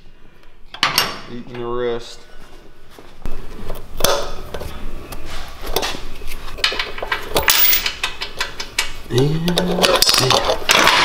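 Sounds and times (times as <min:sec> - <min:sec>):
metal tools clattering: 0:07.3 - 0:08.1.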